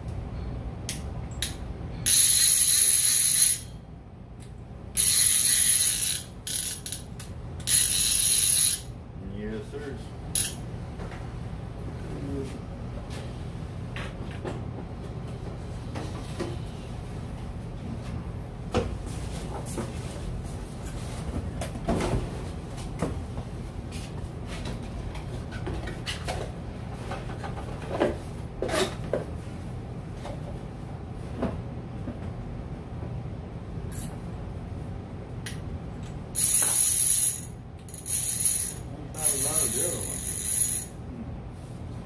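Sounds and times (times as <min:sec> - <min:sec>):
fishing reel clicker ratcheting: 0:02.1 - 0:03.7, 0:05.0 - 0:08.9, 0:10.4 - 0:10.6, 0:36.4 - 0:40.9.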